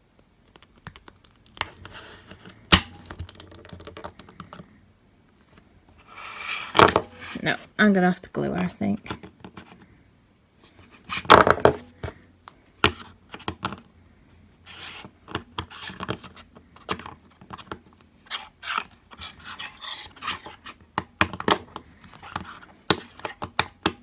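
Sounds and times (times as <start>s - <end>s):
plastic scraping and knocking: 1.5s - 4.7s, 6.6s - 7.5s.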